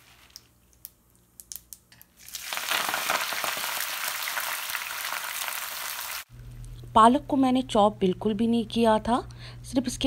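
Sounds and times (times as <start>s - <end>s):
spinach sizzling in hot oil: 2.2s - 6.3s.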